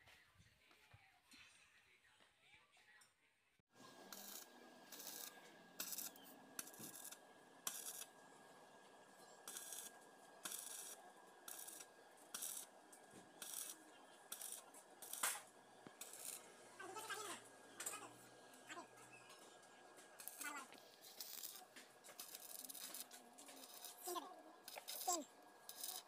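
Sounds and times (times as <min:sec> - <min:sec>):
arc welder bursts: 0:03.8 - 0:18.7, 0:20.0 - 0:26.0.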